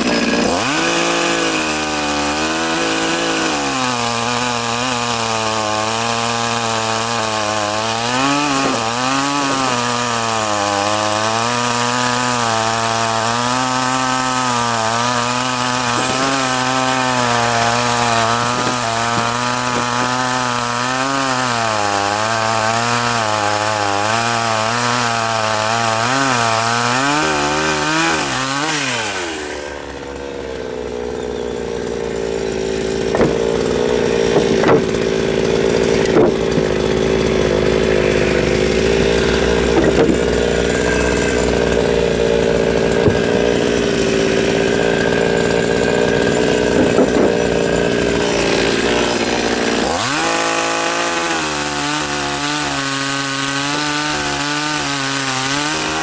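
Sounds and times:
chainsaw cutting logs: 0.0 - 56.0
sharp knocks: 15.6 - 20.9, 33.0 - 37.0, 39.0 - 41.8, 42.9 - 43.5, 46.6 - 47.6.

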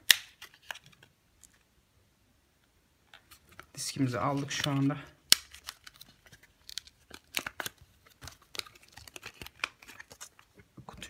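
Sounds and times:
plastic packaging crackling and tearing: 3.3 - 10.5.

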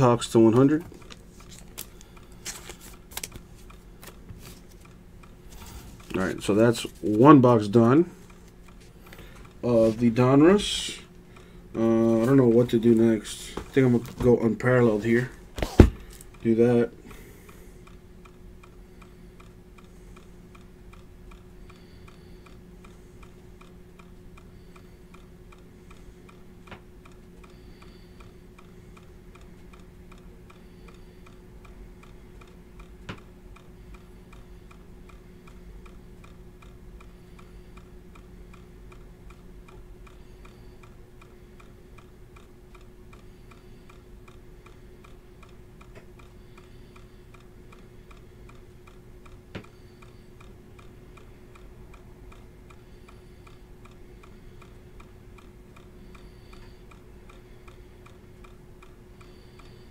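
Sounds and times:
low steady hum: 0.0 - 59.9
rapid even ticking: 16.2 - 59.9.

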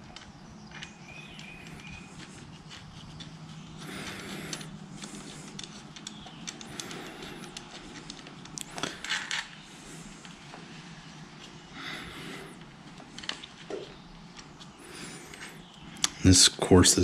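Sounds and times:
small clicks: 0.0 - 10.6
soft rustling: 0.0 - 16.2
steady low hum: 0.0 - 17.0.

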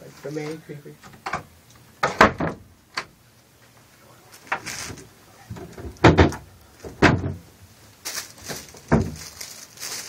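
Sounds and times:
door knocking and rattling: 5.5 - 7.4, 8.9 - 9.3.

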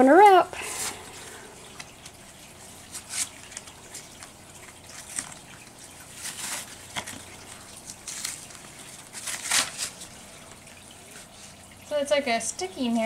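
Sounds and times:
packaging crinkling and rustling: 2.9 - 10.7.

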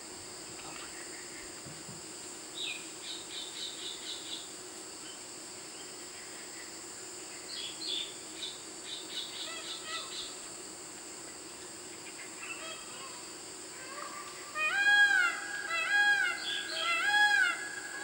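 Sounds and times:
crickets droning: 0.0 - 18.0.

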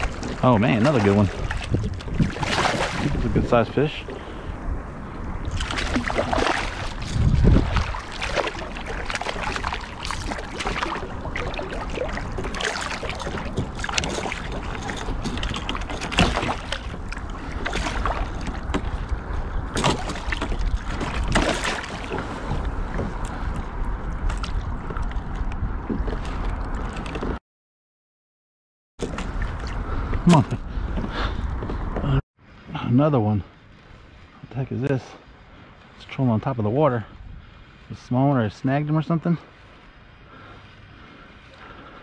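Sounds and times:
water splashing: 0.0 - 4.5, 5.4 - 23.4
wind rumbling on microphone: 0.0 - 27.4, 29.0 - 42.0.

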